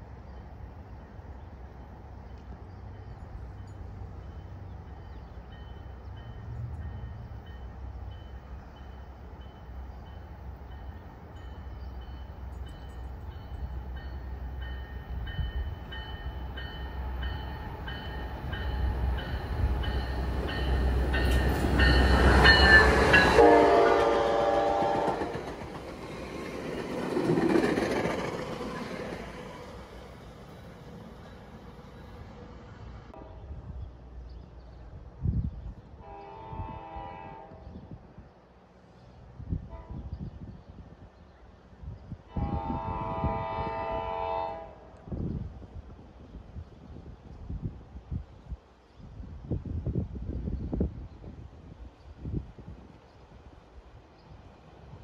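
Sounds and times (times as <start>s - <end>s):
train rumbling past: 0.0s - 48.7s
train horn: 21.2s - 25.4s, 33.1s - 33.6s, 36.0s - 37.9s, 39.6s - 40.2s, 42.3s - 45.1s.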